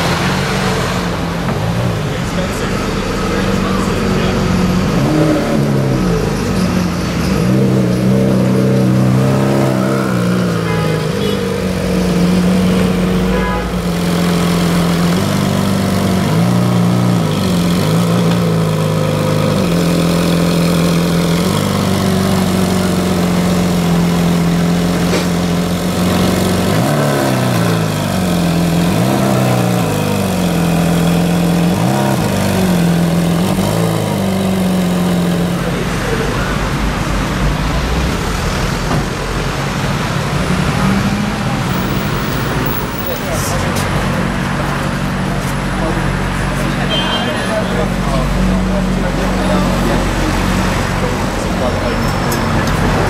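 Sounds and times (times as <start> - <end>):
car engine idling with throttle blips: 0.0 - 53.0.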